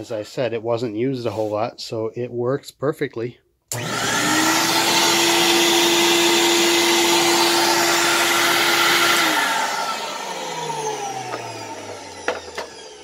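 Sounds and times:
central vacuum humming: 3.7 - 13.0
vacuum winding down whine: 3.7 - 13.0.

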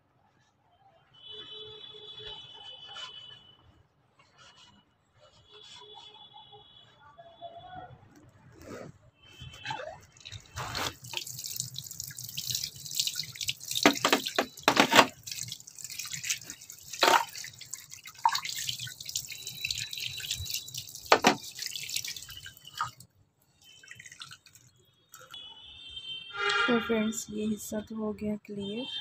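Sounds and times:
water splashing onto plastic: 9.4 - 25.2
plastic knocks from handling: 13.8 - 15.2, 21.1 - 21.4.

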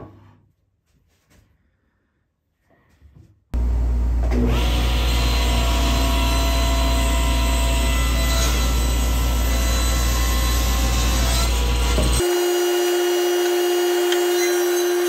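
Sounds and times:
low motor hum: 3.6 - 7.0
table saw cutting wood: 4.2 - 15.0.

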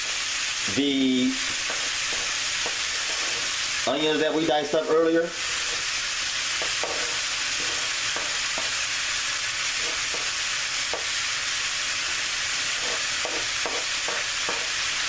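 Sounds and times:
meat sizzling in a skillet: 0.0 - 15.0
spatula scraping and tapping pan: 1.5 - 3.6, 5.5 - 5.9, 6.6 - 8.8, 9.8 - 11.1, 12.7 - 14.8.

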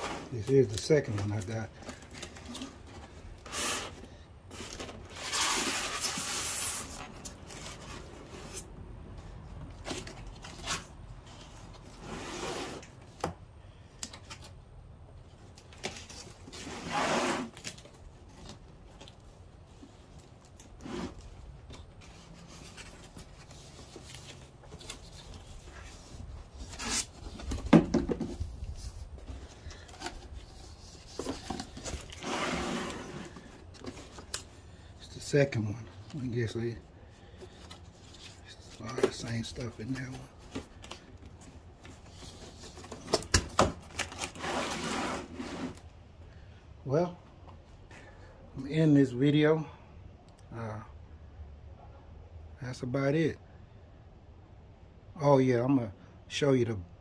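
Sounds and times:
cardboard and plastic rustling: 0.0 - 14.6, 15.2 - 45.9.

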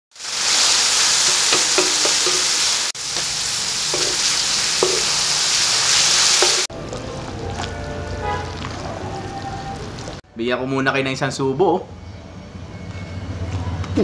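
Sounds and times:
meat sizzling in hot oil: 0.1 - 8.8
spatula scraping a wok: 3.9 - 5.2.

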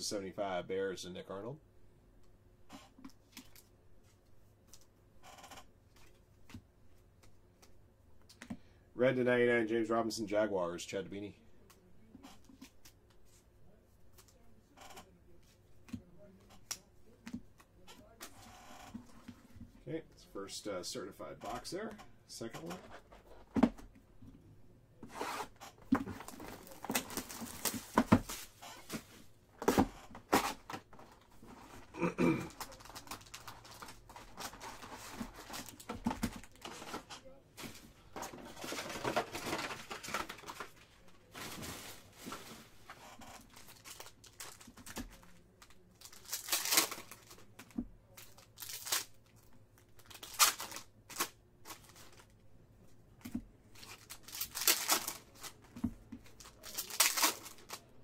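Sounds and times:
wrappers tearing and crinkling: 26.1 - 28.8, 31.2 - 37.1, 38.5 - 49.2, 50.0 - 52.3, 53.8 - 55.6, 56.3 - 58.0
cards shuffling: 46.0 - 49.1, 53.3 - 58.0.

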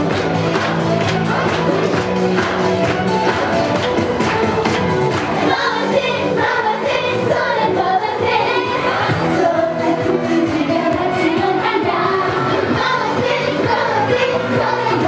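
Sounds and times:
women singing pop song: 5.4 - 15.0.

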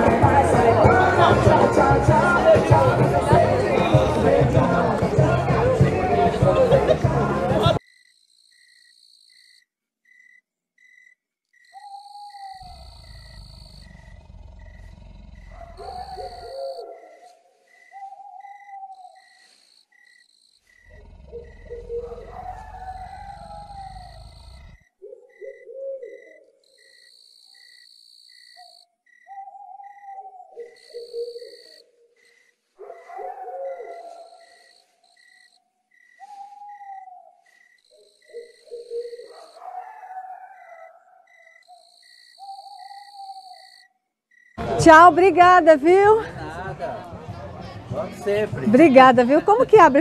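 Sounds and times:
night insects chirping: 7.7 - 46.2
high insect trills: 7.8 - 29.4, 30.7 - 39.7, 41.3 - 44.6.

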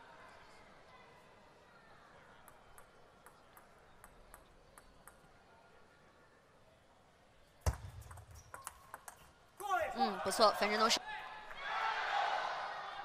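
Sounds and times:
table tennis ball bouncing: 2.4 - 5.3, 7.6 - 9.8.

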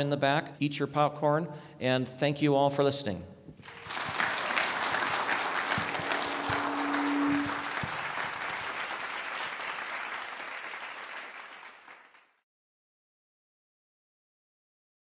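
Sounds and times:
audience applauding: 3.6 - 12.4.

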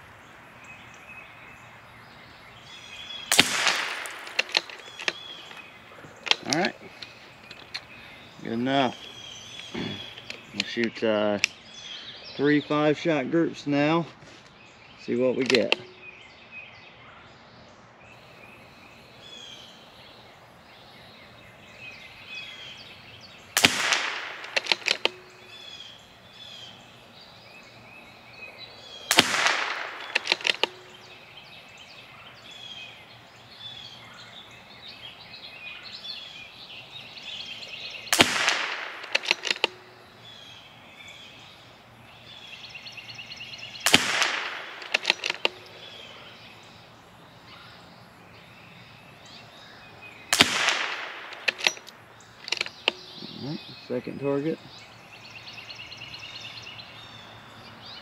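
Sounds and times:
birds chirping: 0.0 - 58.0
rifle bolt clicking: 3.3 - 5.6, 15.4 - 15.9, 23.6 - 25.3, 29.2 - 30.8, 38.2 - 39.8, 43.9 - 45.8, 50.4 - 53.1
rifle shots: 3.3 - 5.6, 23.6 - 25.3, 29.1 - 30.9, 38.1 - 39.8, 43.8 - 45.6, 50.3 - 51.9.

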